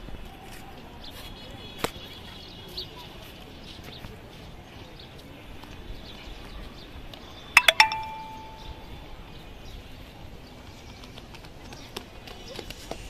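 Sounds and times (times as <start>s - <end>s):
bell dinging: 7.6s - 8.9s
faint high chirps: 7.6s - 8.9s.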